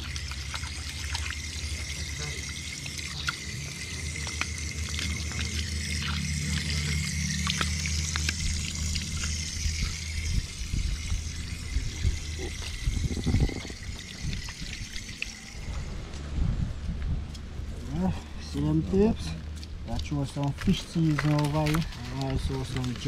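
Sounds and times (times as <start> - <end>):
tap water splashing: 0.0 - 10.0.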